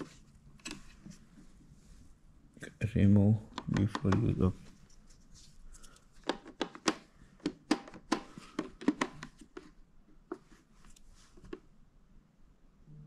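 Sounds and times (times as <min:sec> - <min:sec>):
sharp plastic clicks and taps: 0:03.5 - 0:04.4.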